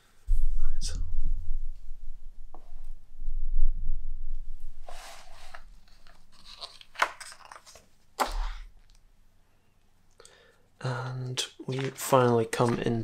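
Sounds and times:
book pages rustling: 4.9s - 8.6s, 11.6s - 13.0s.

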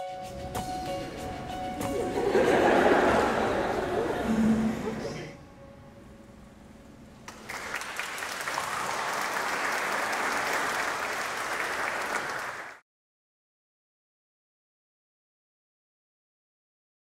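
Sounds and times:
group applauding: 7.3s - 12.8s.

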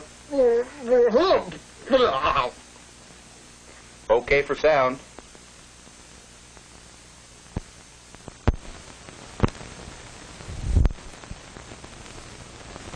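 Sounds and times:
film soundtrack hiss: 0.0s - 12.9s.

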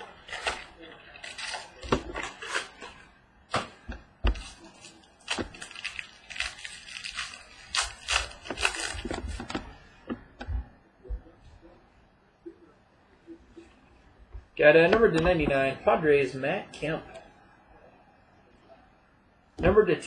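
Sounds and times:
cellophane wrapper crinkling: 0.0s - 3.1s, 4.4s - 9.5s.

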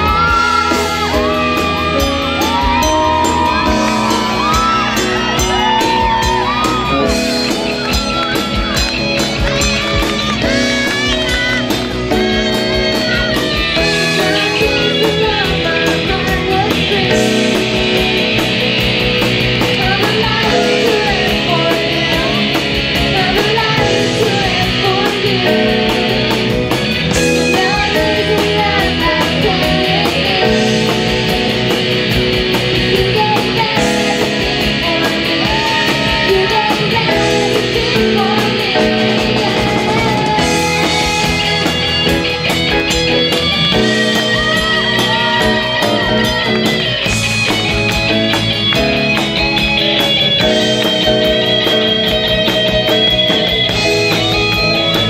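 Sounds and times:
girl singing: 0.0s - 1.9s, 14.1s - 18.3s, 19.7s - 26.2s, 27.4s - 31.3s, 32.9s - 41.2s
rock band playing: 0.0s - 55.0s.

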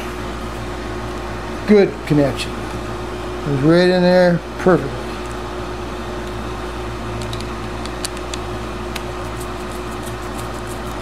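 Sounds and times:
steady room hum: 0.0s - 11.0s.

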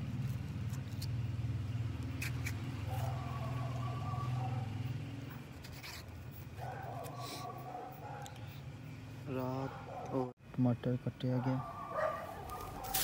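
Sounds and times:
engine running low hum: 0.0s - 10.3s.

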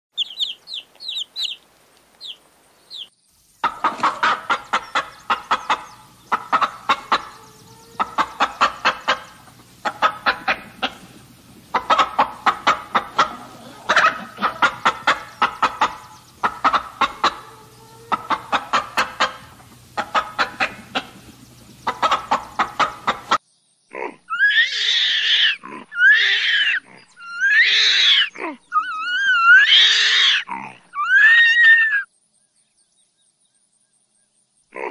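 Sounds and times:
chicks peeping: 0.2s - 23.4s
hen clucking: 0.2s - 23.4s
animal calls rising and falling: 24.3s - 32.1s.

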